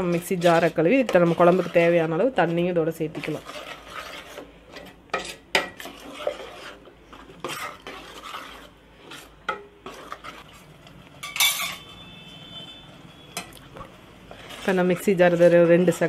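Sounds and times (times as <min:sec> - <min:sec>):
ladle scraping a steel pot: 0:00.0 - 0:16.0
metal clank ringing: 0:11.2 - 0:11.9.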